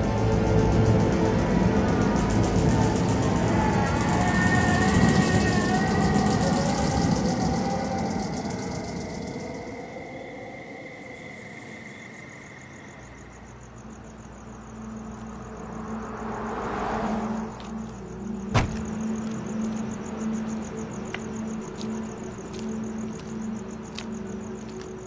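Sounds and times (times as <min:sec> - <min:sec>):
crickets chirping: 0:00.0 - 0:25.0
car door slamming: 0:18.5 - 0:19.0.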